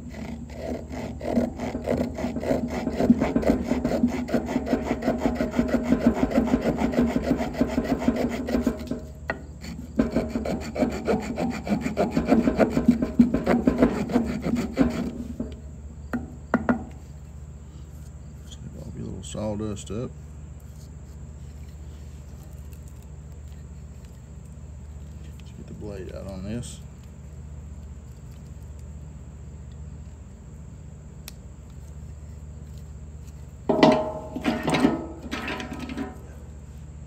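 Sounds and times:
saw cutting damp wood: 0.0s - 9.0s, 9.6s - 15.2s.

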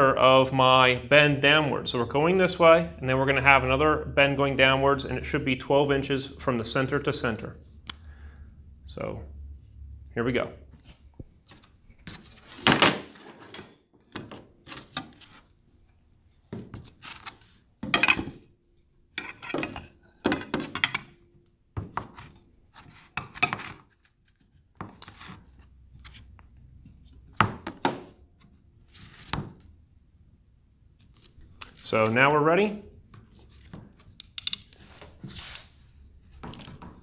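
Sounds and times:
metal tools knocking and clanking: 17.8s - 18.3s, 19.2s - 21.1s, 34.2s - 34.8s.

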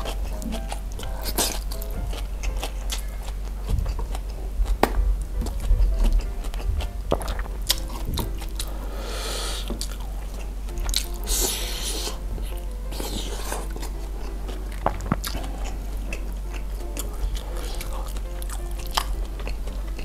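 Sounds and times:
faint background music: 0.0s - 20.0s
man chewing food: 0.0s - 20.0s
hissing sounds: 8.6s - 9.9s, 11.1s - 15.9s.

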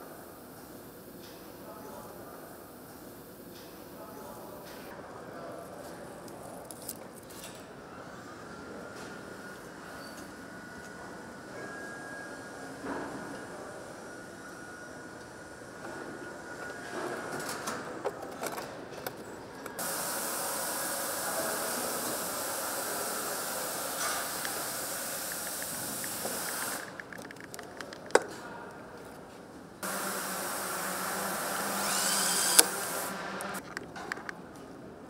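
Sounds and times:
power tool hissing: 19.8s - 27.0s, 29.8s - 33.6s
power tool whine: 29.8s - 33.6s
tool clicks: 31.8s - 34.4s.

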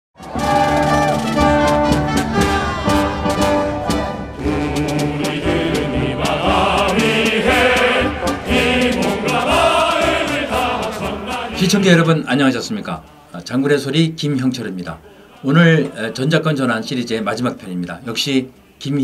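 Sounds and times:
orchestral music with brass: 0.2s - 12.0s
choir-like voices: 3.8s - 12.2s, 15.0s - 16.7s.

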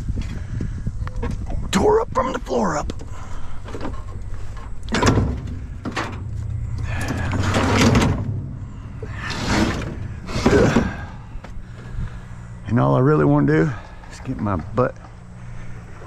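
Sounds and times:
mower scraping on metal floor: 3.9s - 11.1s.

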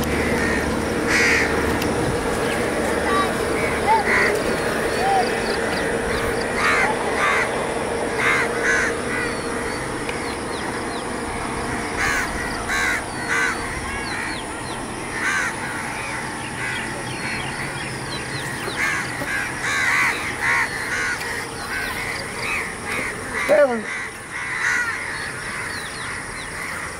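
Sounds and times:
crows cawing: 0.0s - 26.9s
outdoor background noise: 0.0s - 26.9s
high bird chirps: 3.7s - 14.9s.

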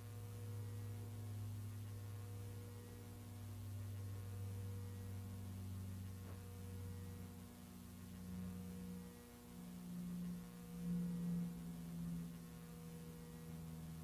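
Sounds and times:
faint electrical hum: 0.0s - 14.0s.

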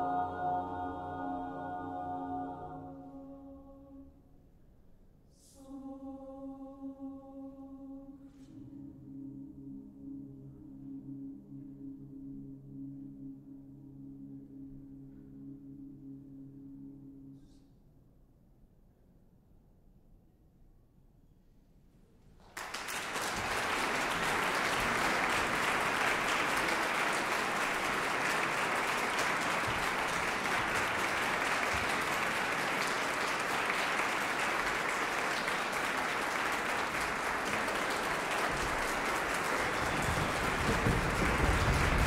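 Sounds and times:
audience applause: 22.4s - 42.0s.

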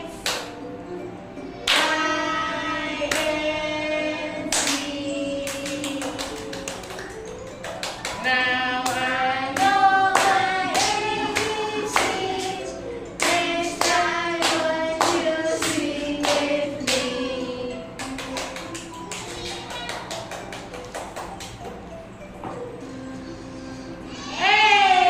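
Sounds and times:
person singing: 1.6s - 7.1s, 8.2s - 19.0s
sharp claps or taps beat: 18.0s - 21.8s.

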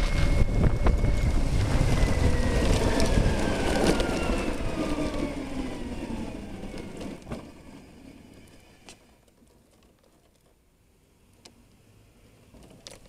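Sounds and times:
electric scooter motor whining: 0.0s - 9.4s
road rumble: 0.0s - 13.0s
wind: 0.0s - 13.0s.

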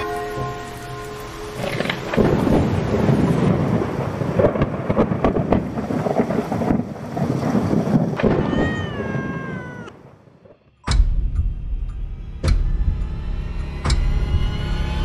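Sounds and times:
held music chord: 0.0s - 2.7s
rain hissing: 0.0s - 10.4s
thunder rumbling and crackling: 0.0s - 11.6s.

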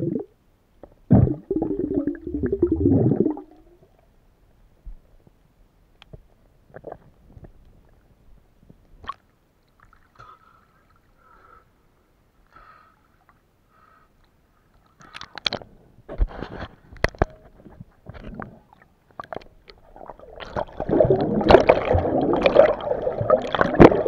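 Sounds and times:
water gurgling and sloshing: 18.1s - 24.0s.

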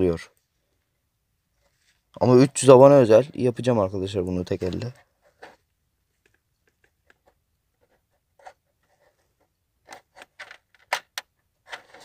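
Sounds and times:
plastic parts clicking and scraping: 4.6s - 7.4s, 8.4s - 12.0s.

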